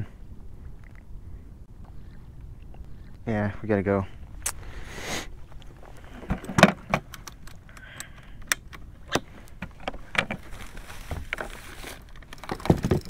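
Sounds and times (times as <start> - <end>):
fishing gear clicks and rattles: 5.4 - 13.0.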